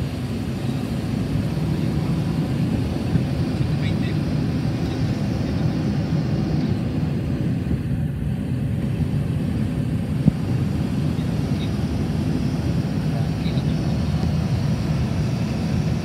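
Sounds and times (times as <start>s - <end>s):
jet engine and airflow rumble: 0.0s - 16.0s.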